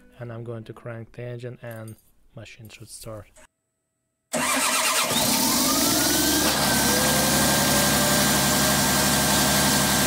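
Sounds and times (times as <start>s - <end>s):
diesel engine idling: 4.4s - 10.0s.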